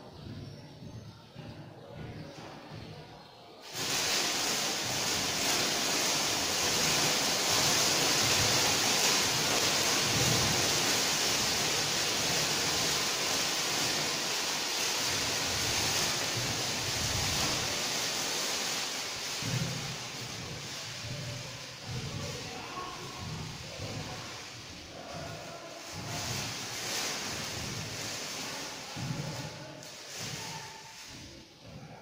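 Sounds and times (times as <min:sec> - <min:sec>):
thermite burning with loud hiss: 0:03.6 - 0:22.3.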